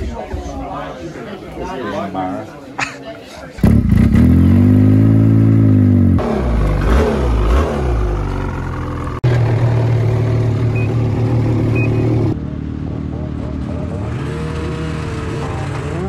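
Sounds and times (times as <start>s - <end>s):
snowmobile engine running: 3.6s - 16.0s.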